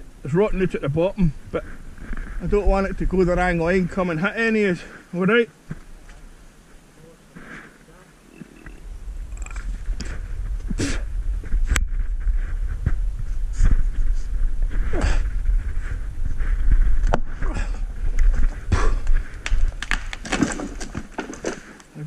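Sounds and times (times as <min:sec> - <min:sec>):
low rumbling and rubbing: 0:00.0 - 0:04.9, 0:05.7 - 0:21.7
wood cracking: 0:15.2 - 0:22.0.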